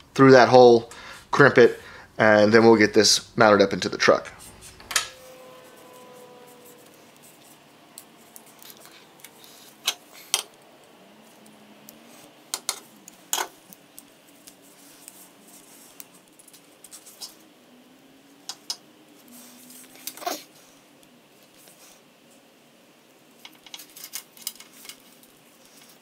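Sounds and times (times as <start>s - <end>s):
small metal parts clicking: 23.4s - 26.0s.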